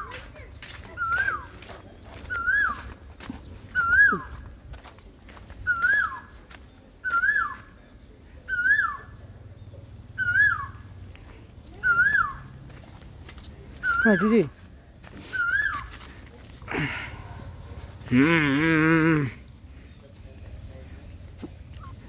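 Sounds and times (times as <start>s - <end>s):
puppy whining: 21.8s - 22.0s.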